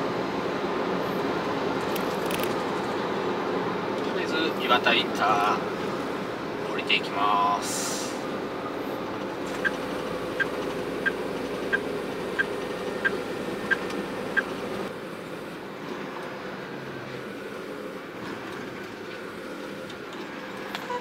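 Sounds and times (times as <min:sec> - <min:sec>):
road noise: 0:00.0 - 0:21.0
truck engine drone: 0:00.0 - 0:21.0
turn signal ticking: 0:09.2 - 0:14.9.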